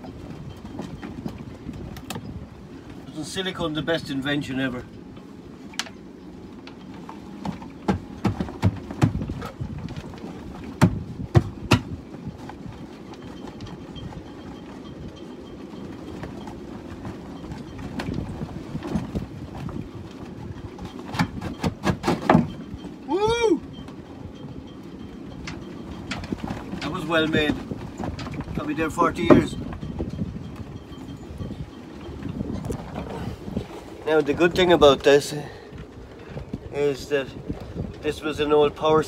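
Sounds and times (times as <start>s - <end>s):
sharp knocks and clicks: 10.8s - 12.0s.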